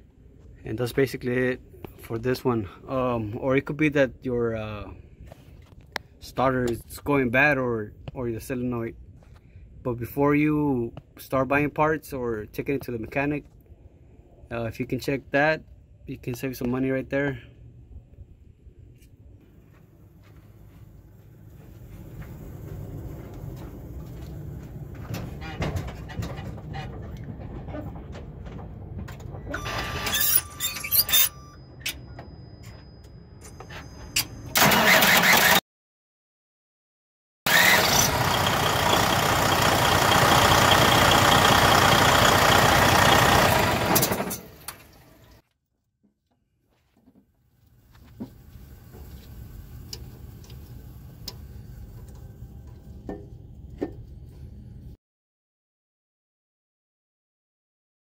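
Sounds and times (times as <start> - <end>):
low steady rumble: 0.0 - 29.5, 47.5 - 55.0
starter motor cranking: 34.6 - 35.6, 37.5 - 44.9.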